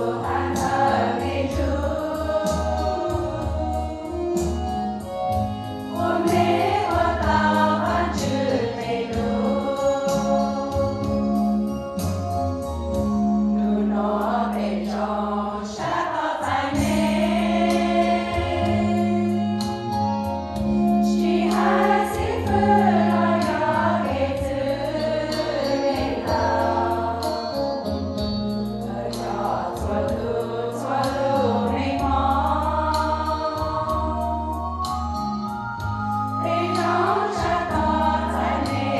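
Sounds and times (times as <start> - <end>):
women's choir singing a hymn: 0.0 - 11.2, 13.6 - 19.9, 20.8 - 27.9, 28.8 - 35.0, 35.6 - 38.9.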